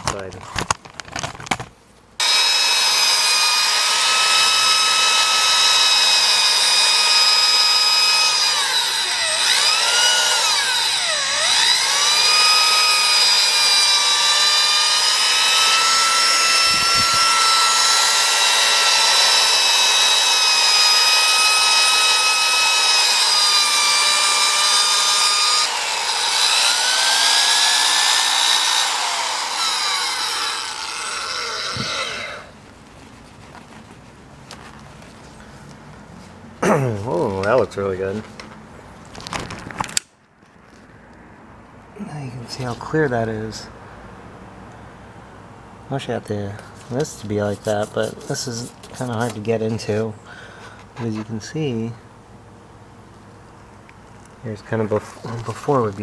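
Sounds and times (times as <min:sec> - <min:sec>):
drill motor whining: 0:02.2 - 0:32.5.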